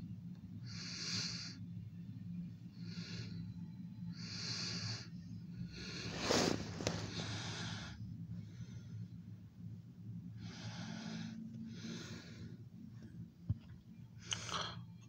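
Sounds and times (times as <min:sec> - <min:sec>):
faint low hum: 0:00.0 - 0:15.0
person breathing: 0:02.7 - 0:09.3, 0:10.4 - 0:12.8.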